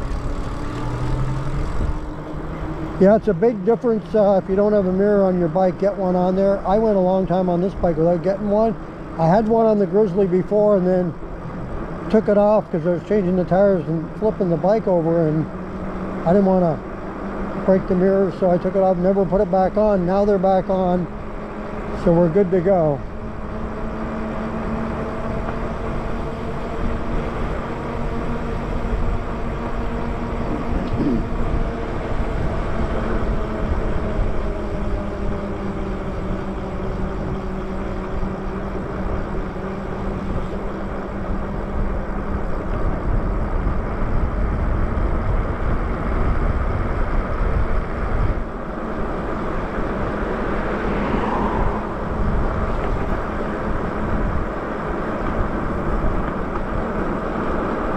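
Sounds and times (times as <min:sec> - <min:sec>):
electric motor whine: 0:00.0 - 0:03.5, 0:23.0 - 0:57.9
tyres running on asphalt: 0:00.0 - 0:57.9
wind buffeting the microphone: 0:41.8 - 0:57.2.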